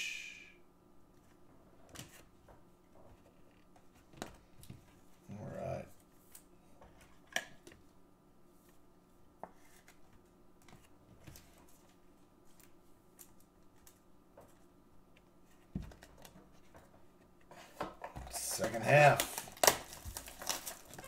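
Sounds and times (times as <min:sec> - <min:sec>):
cards and plastic sleeves rustling: 0:17.6 - 0:21.0.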